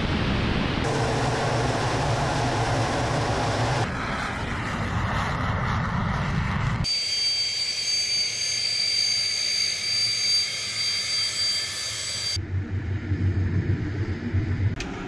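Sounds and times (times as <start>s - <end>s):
jet engines whining: 0.0s - 15.0s
low engine rumble: 0.6s - 3.9s.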